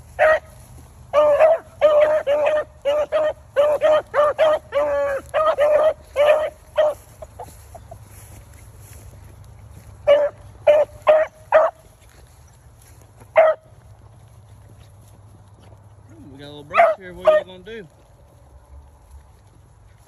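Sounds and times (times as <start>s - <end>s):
hounds barking: 0.0s - 7.9s, 9.7s - 12.2s, 13.3s - 14.0s, 16.5s - 17.8s.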